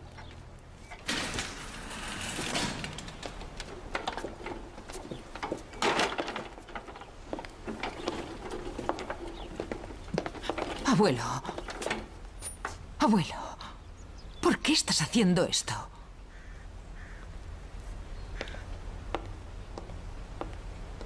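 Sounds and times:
door sliding open: 0.9 - 11.1
clicks and knocks: 0.9 - 12.8
wheelchair rolling on wooden floor: 0.9 - 12.9.

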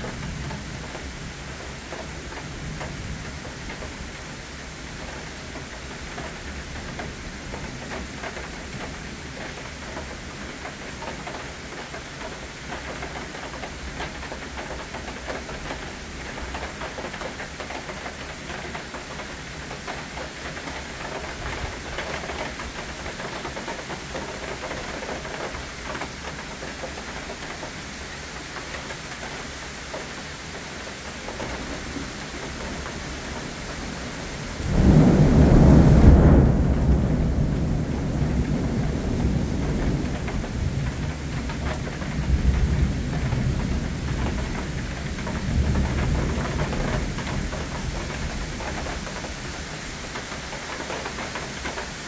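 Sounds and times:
rain falling on foliage: 0.0 - 52.0
thunder peal: 34.6 - 44.0.

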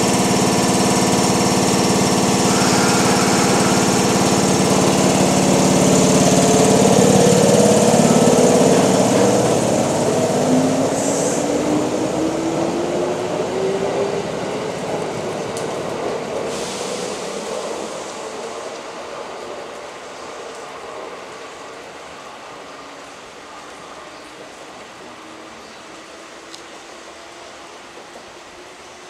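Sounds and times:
electric train hum: 0.0 - 29.0
traction motor whine rising: 0.8 - 14.4.

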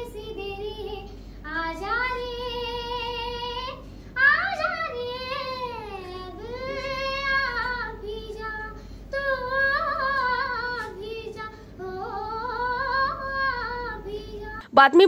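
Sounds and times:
girl singing unaccompanied: 0.0 - 14.6.

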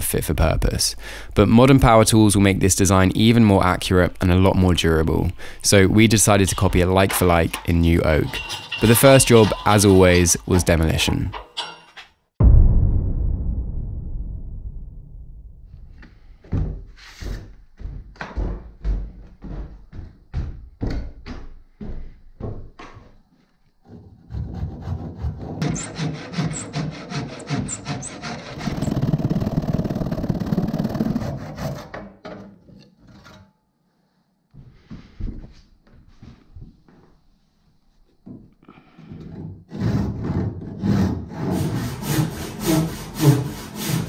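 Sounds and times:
hand saw cutting wood: 6.7 - 10.8, 23.9 - 32.1, 39.7 - 44.0
low rumble: 12.4 - 16.4.

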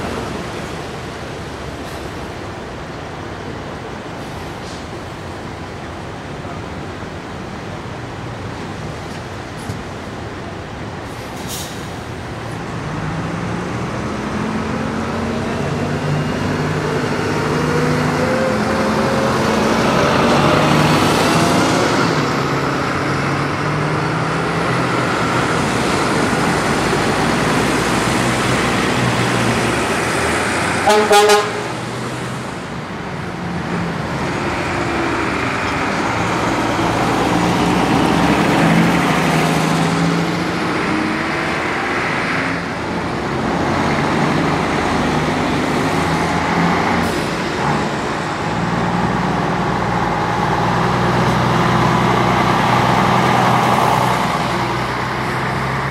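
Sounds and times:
diesel buses driving past: 0.0 - 55.9
bus horn tooting: 30.8 - 31.8.

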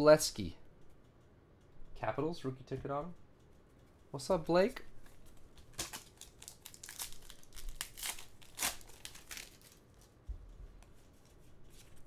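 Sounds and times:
cards being handled: 5.0 - 12.0
plastic wrapper tearing and crinkling: 5.7 - 10.1.

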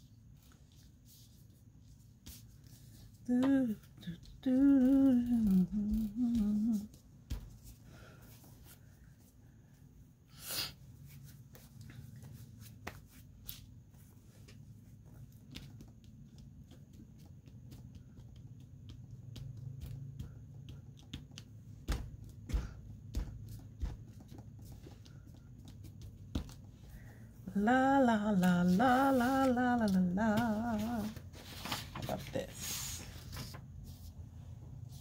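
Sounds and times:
steady low hum: 0.0 - 35.0
paper rustling and crackling: 31.0 - 33.9.

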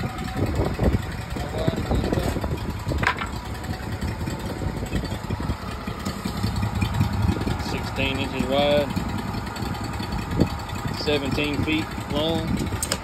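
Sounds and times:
gas engine idling: 0.0 - 13.0.

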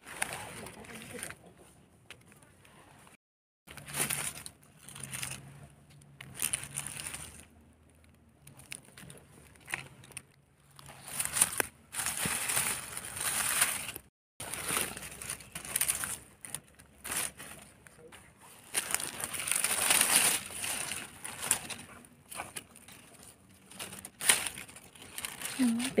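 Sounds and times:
dry leaves crunching: 3.7 - 7.6, 8.4 - 17.8, 18.5 - 26.0.

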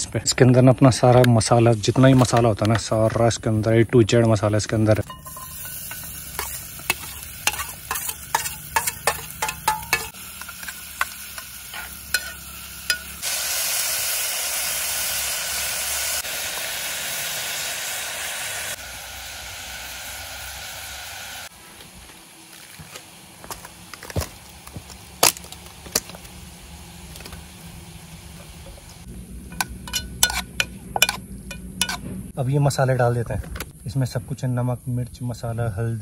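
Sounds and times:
oil popping and crackling: 4.7 - 32.0
food sizzling in oil: 5.0 - 32.0.

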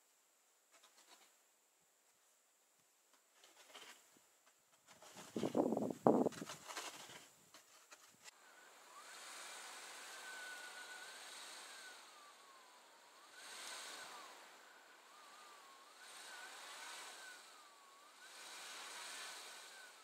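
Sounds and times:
thin whine: 7.8 - 20.0
car engine revving: 8.4 - 20.0.

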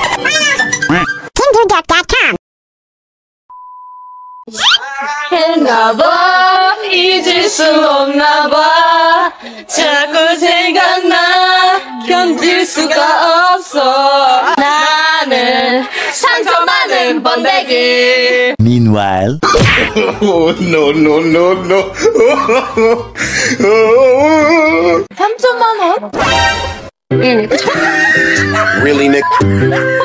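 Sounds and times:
women singing together: 5.2 - 18.6.

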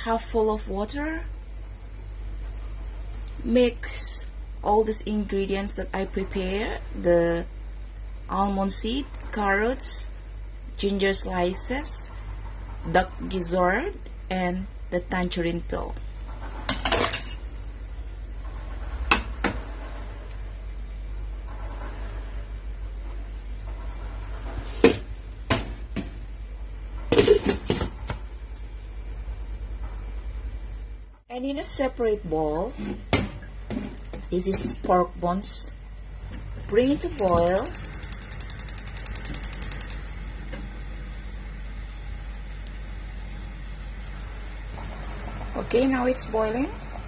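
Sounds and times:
induction cooktop humming: 0.0 - 47.0
high-pitched ticking buzz: 37.2 - 40.0.

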